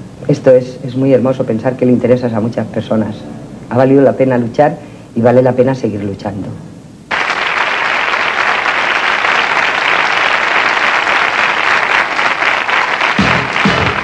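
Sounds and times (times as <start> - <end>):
audience applauding: 7.1 - 14.0.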